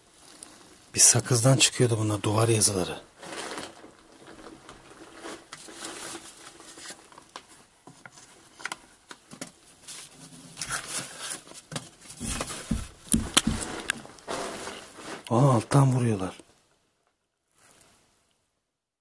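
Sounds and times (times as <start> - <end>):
faint taps and knocks: 11.7 - 13.9.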